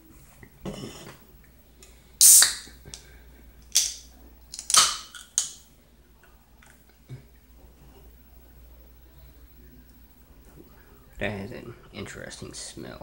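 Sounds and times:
soda can opening with hiss: 2.2s - 3.0s, 3.6s - 5.6s.

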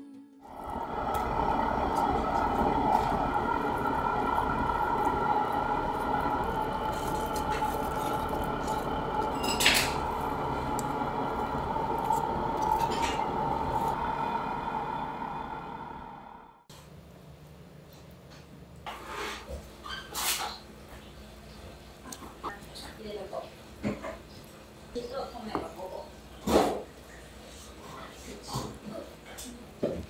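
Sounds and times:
kitchen machinery humming: 0.4s - 16.7s
dishes clinking: 6.9s - 10.2s.

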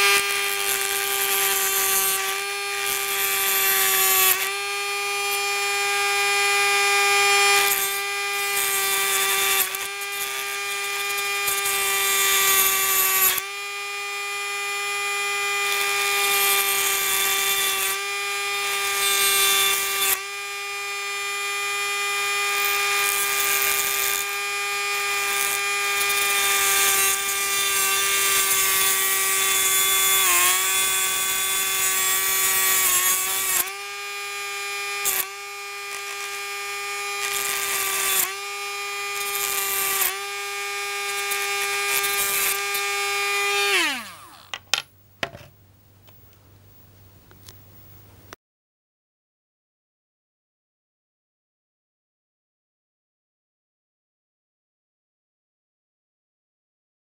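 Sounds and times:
cutting wheel grinding metal: 0.0s - 44.8s
rotary tool whining: 0.0s - 45.4s.

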